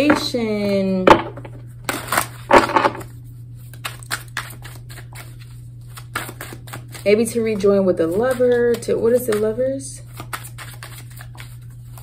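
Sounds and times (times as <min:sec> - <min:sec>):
cards flicking and snapping: 0:03.7 - 0:07.0, 0:10.1 - 0:12.0.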